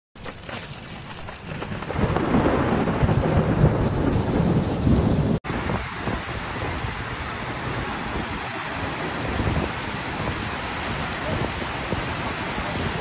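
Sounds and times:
heavy rain: 0.2 - 13.0
rolling thunder: 1.3 - 7.0
steady rushing noise: 2.6 - 13.0.

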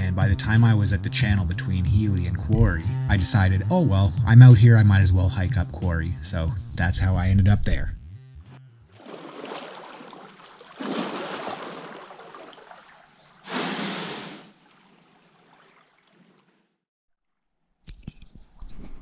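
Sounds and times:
paddle splashing water: 8.9 - 16.8.

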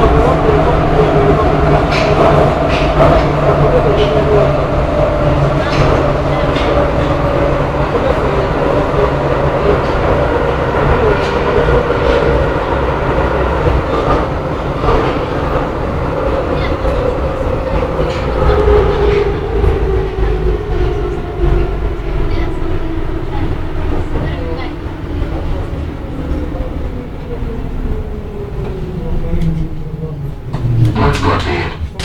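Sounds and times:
train rumble and rail noise: 0.0 - 32.0
train whine: 0.0 - 32.0.

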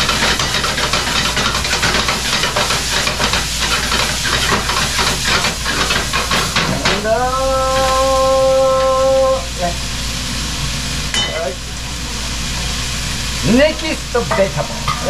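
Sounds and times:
scraping and tapping in a pan: 0.0 - 7.0
rice sizzling in a pan: 0.0 - 15.0.

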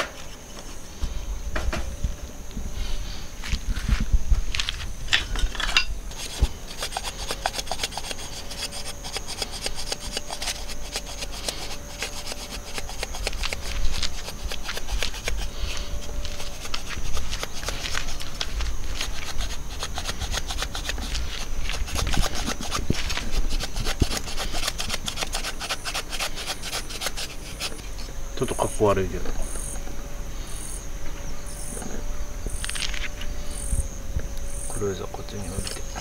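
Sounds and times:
hatchet scraping wood: 0.0 - 1.0, 4.6 - 28.8, 35.4 - 36.0.

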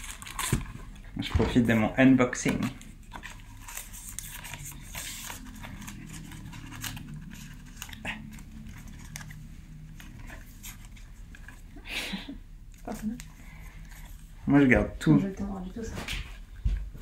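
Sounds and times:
packaging rustling and scraping: 0.0 - 11.7.

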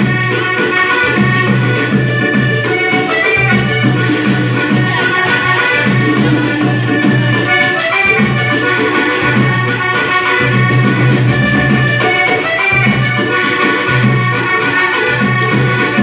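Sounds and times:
accordion folk dance music: 0.0 - 16.0
percussion steady beat: 0.0 - 16.0.

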